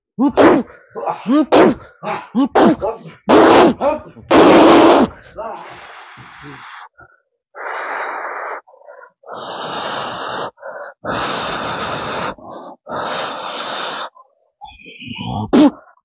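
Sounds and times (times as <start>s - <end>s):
person exhaling hard: 3.1s - 7.0s
quick intakes of breath: 5.6s - 7.0s, 7.6s - 15.3s.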